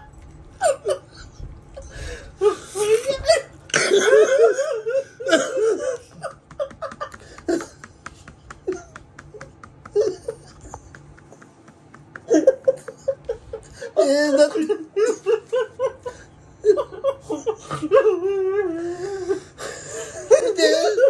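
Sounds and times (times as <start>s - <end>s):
men laughing: 0.6s - 21.0s.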